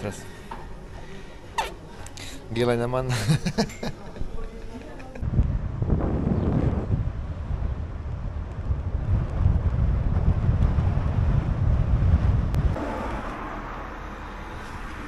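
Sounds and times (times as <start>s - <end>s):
wind buffeting microphone: 5.2s - 12.8s.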